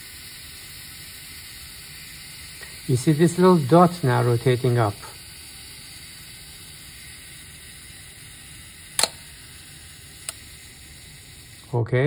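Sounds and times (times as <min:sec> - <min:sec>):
faint steady hiss: 0:00.0 - 0:12.0
camera shutter clicks: 0:08.8 - 0:09.4.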